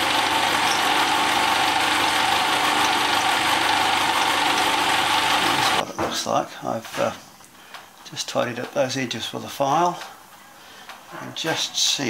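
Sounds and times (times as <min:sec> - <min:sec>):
milling machine cutting metal: 0:00.0 - 0:05.8.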